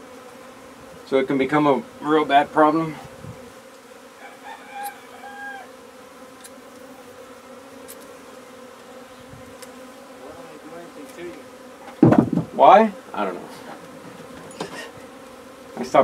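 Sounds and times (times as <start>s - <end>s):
honey bees buzzing: 0.0s - 16.0s
rooster crowing: 4.1s - 5.9s.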